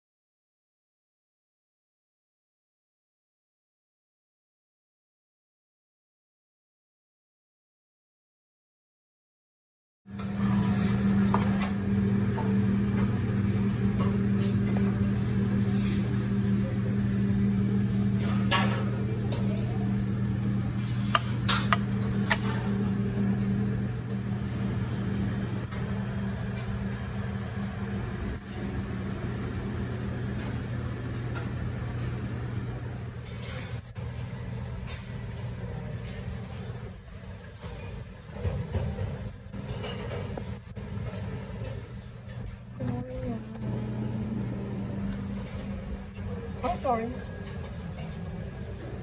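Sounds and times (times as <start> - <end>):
low mechanical hum: 10.1 - 49.0.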